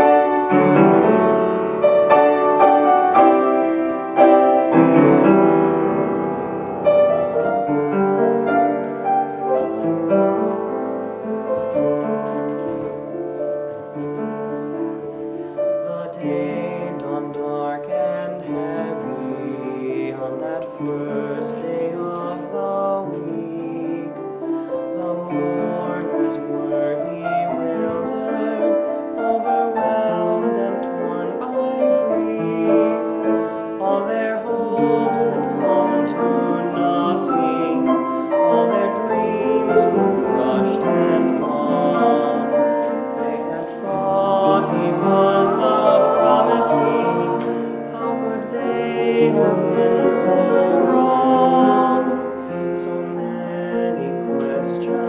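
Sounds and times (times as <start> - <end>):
choir of young voices singing hymn: 24.1 - 55.0.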